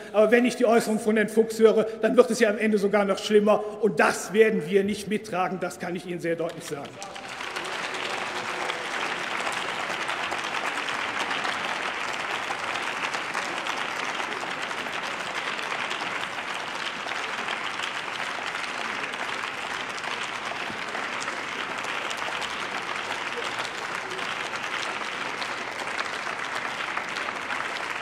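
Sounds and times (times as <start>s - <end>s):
crowd applauding: 6.4s - 28.0s.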